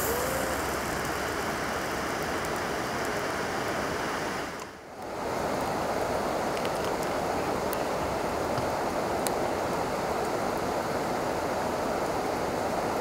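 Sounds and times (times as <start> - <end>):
person humming: 0.0 - 0.8
river rushing: 0.0 - 13.0.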